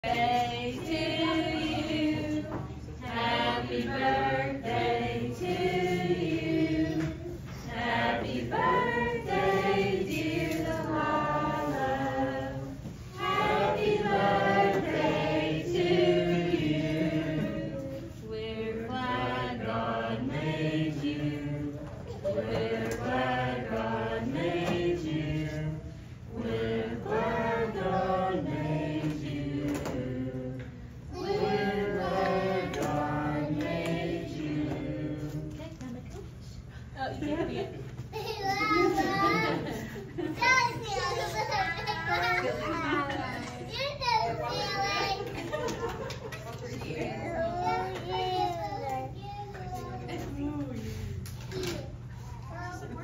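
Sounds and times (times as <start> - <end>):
choir singing: 0.0 - 35.5.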